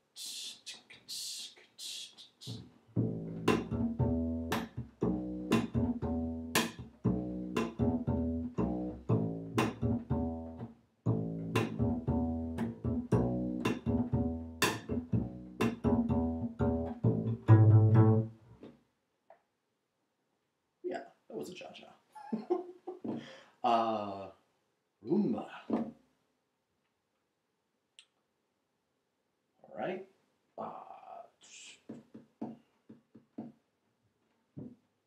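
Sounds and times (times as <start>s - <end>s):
plucked bass groove: 2.5s - 18.4s.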